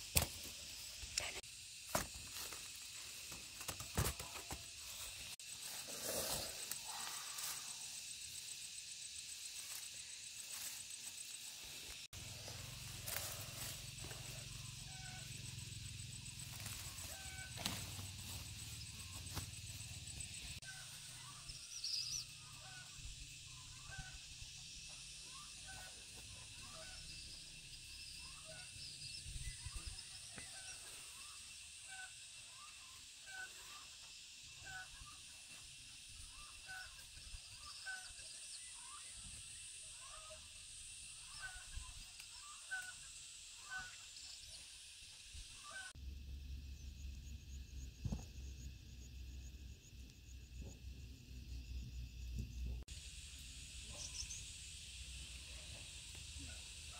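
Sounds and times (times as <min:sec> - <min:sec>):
steady high hiss: 0:52.9 - 0:56.9.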